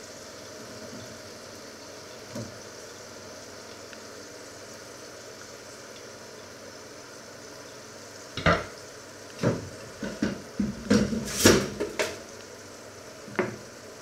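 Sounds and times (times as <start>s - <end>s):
cutting board knocking in sink: 8.4s - 8.7s, 9.4s - 12.2s, 13.4s - 13.6s.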